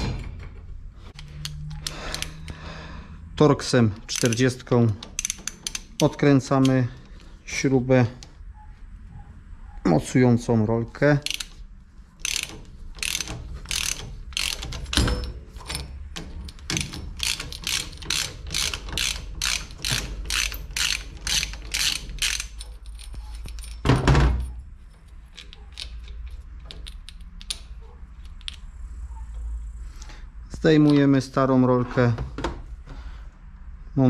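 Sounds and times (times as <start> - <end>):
hand ratchet clicking: 1.1 - 2.6, 4.0 - 7.2, 11.2 - 11.6, 12.2 - 23.8
handling of metal parts: 4.0 - 8.2, 11.2 - 28.7.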